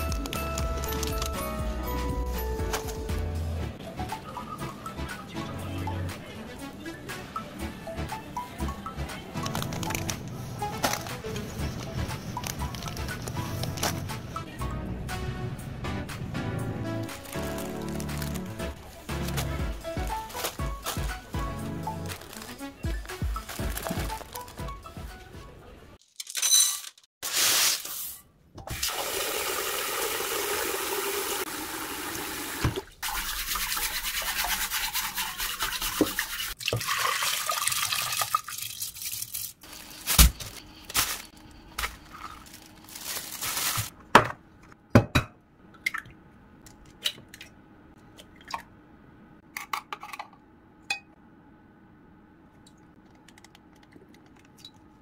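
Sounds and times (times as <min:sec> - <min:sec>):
water running: 0:28.7 - 0:40.0.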